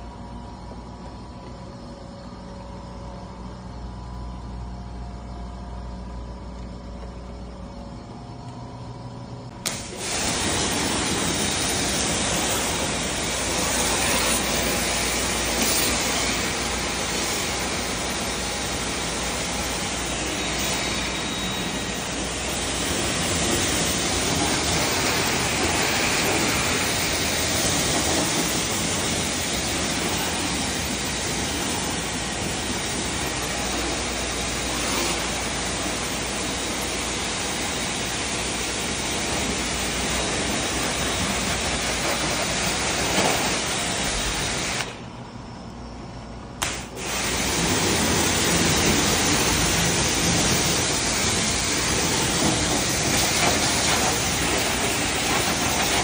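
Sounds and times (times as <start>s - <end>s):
pressure washer spraying metal: 9.6s - 45.0s, 46.6s - 56.0s.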